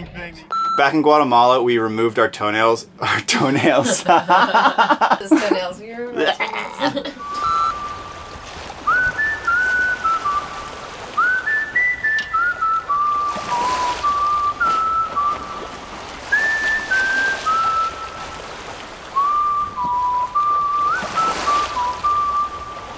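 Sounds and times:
person whistling a tune: 7.2s - 15.7s, 16.3s - 18.4s, 19.2s - 22.9s.

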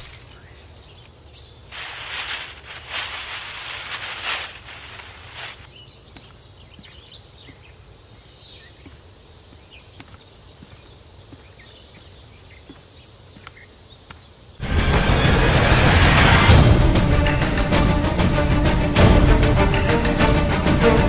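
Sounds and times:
plastic bag rustling: 1.7s - 5.7s.

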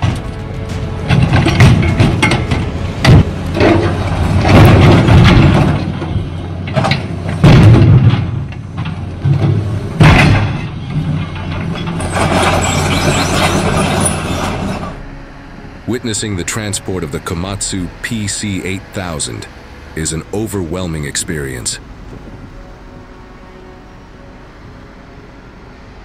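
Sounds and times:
heavy metal bangs: 0.0s - 14.7s
grinding metal crunching: 0.0s - 22.3s
excavator engine running: 0.0s - 26.0s.

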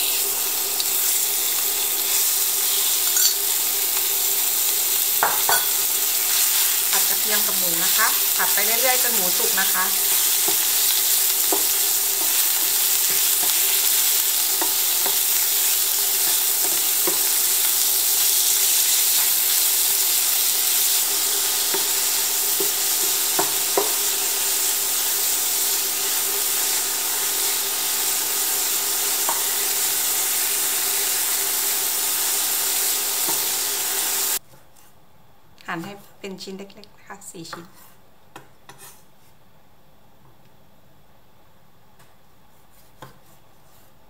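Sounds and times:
meat and garlic sizzling in oil: 0.0s - 34.4s.

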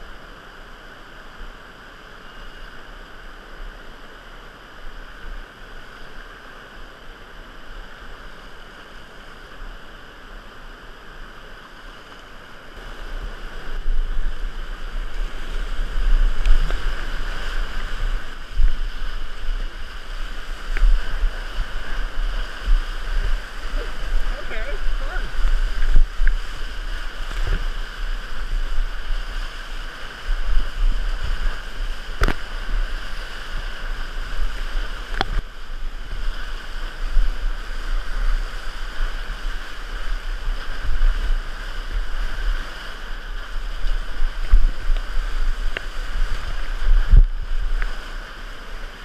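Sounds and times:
whitewater rushing: 0.0s - 49.0s
water splashing on microphone: 11.8s - 49.0s
wind buffeting microphone: 12.8s - 49.0s.

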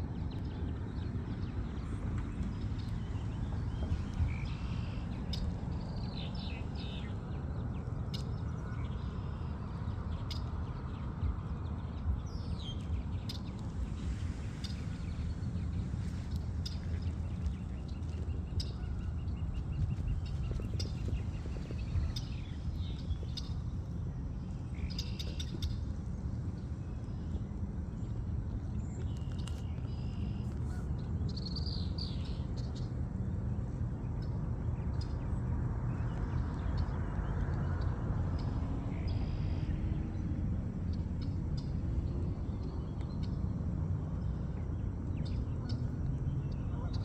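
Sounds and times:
birds chirping: 0.3s - 28.1s
wind on microphone: 9.5s - 27.1s.

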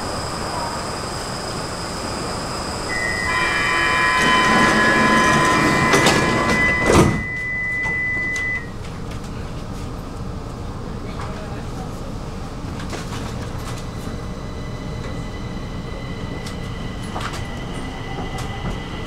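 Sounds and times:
metro train whine: 0.0s - 19.0s
brake squeal: 2.8s - 8.7s.

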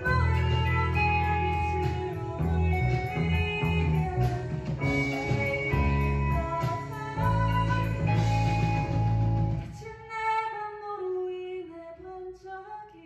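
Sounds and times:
live rock band playing: 0.0s - 9.8s
strong bass line: 0.0s - 9.8s.

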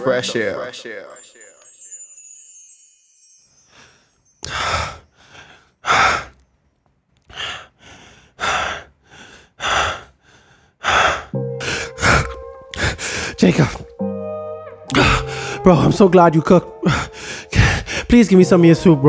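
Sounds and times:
man panting heavily: 4.4s - 6.4s, 7.3s - 13.8s, 16.9s - 18.1s.

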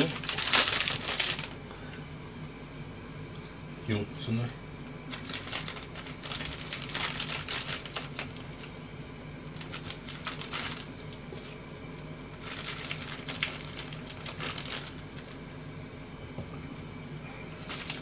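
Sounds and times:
bag crinkling: 0.0s - 1.6s.

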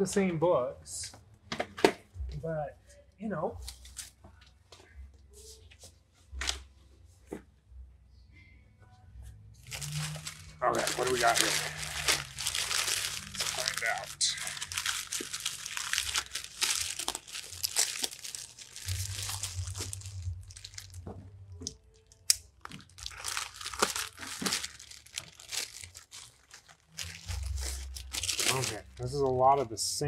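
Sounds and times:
plastic bags crinkling: 9.6s - 29.4s.

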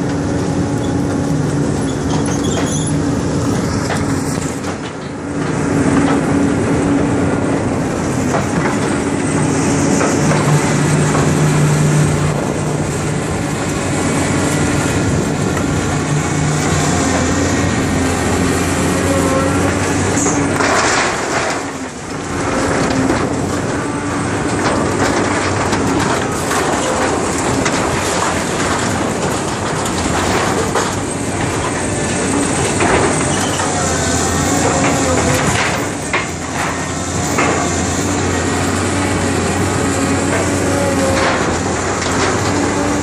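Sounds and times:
diesel engine under load: 0.0s - 43.0s
sheet-metal roofing squealing: 1.8s - 3.1s, 16.8s - 21.2s, 32.5s - 43.0s
timber crunching and splintering: 2.2s - 43.0s
sharp cracks and knocks: 19.7s - 23.8s, 24.4s - 33.8s, 34.6s - 38.2s.

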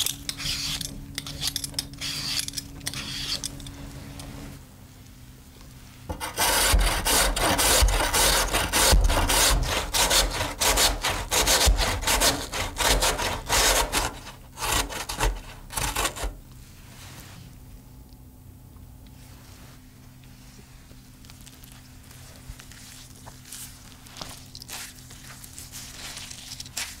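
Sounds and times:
potato scraping on metal grater: 6.1s - 16.4s.

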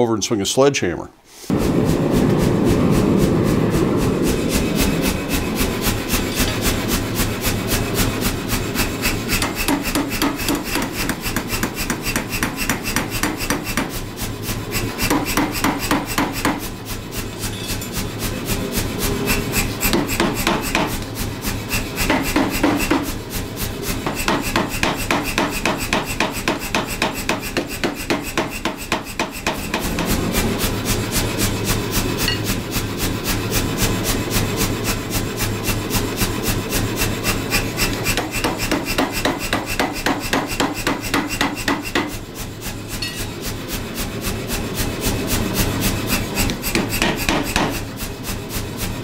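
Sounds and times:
machine hum: 1.5s - 10.2s
power hammer striking hot steel: 1.5s - 33.2s, 33.8s - 49.0s.

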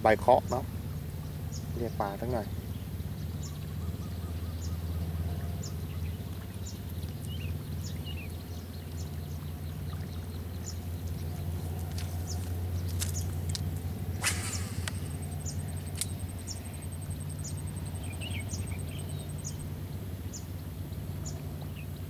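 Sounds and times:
steady low hum: 0.0s - 22.0s
faint high ticks: 11.8s - 19.6s.

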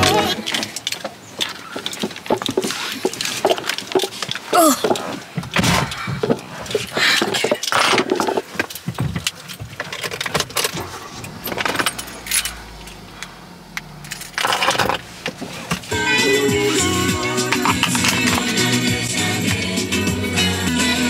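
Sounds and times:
music: 0.0s - 0.4s, 15.9s - 21.0s
objects being handled: 0.0s - 12.6s.

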